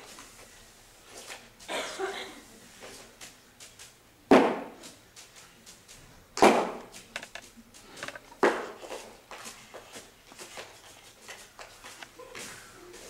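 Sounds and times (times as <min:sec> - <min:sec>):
loud knocks on stage floor: 0:04.3 - 0:04.8, 0:06.4 - 0:06.8
light taps and scuffs: 0:04.7 - 0:13.0.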